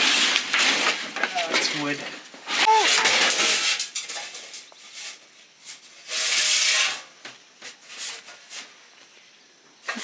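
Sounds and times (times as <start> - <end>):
sheet metal scraping: 2.5 - 7.1.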